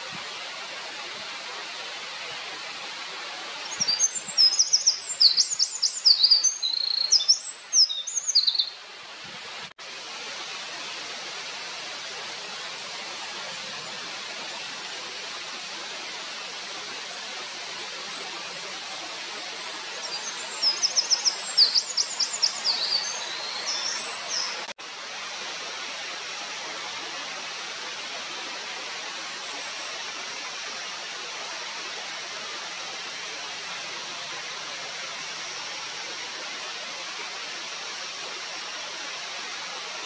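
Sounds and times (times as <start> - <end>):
running water: 0.0 - 40.0
wren singing: 3.7 - 8.7, 20.0 - 24.6.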